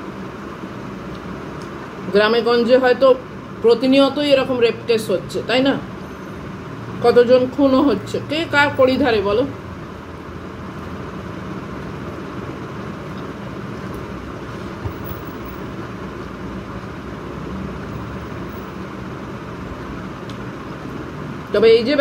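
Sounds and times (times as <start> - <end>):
faint hum: 0.0 - 22.0.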